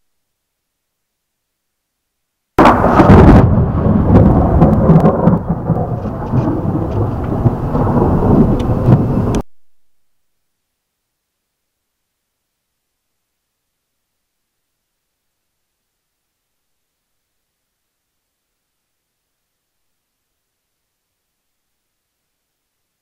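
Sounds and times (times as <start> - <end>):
thunder crack and rumble: 2.6 - 9.4.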